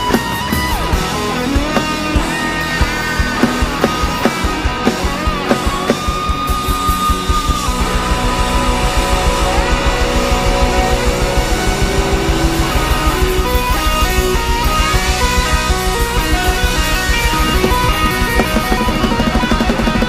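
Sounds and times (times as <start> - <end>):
electric guitar long bending note: 0.0 - 20.0
rock band playing: 0.0 - 20.0.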